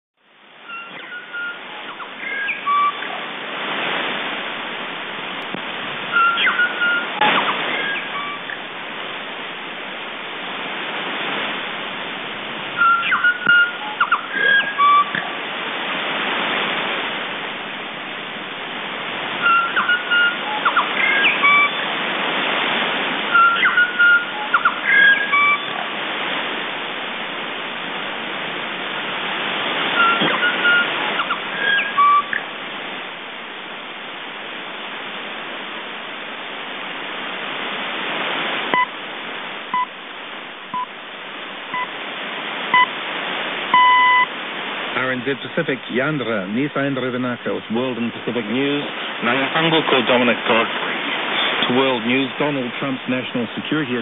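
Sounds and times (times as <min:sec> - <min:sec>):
radio static hiss: 0:00.2 - 0:54.0
bird singing ringing notes: 0:00.7 - 0:03.1, 0:06.1 - 0:07.0, 0:12.8 - 0:15.2, 0:19.4 - 0:21.8, 0:23.3 - 0:25.8, 0:30.0 - 0:32.4.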